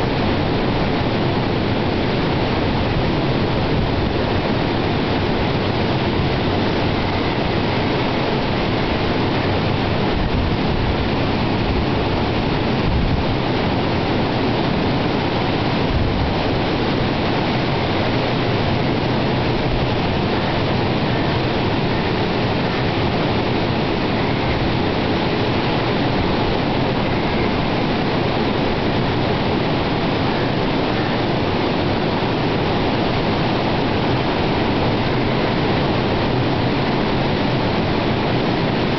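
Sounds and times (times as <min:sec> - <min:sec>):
strong wind: 0:00.0 - 0:38.9.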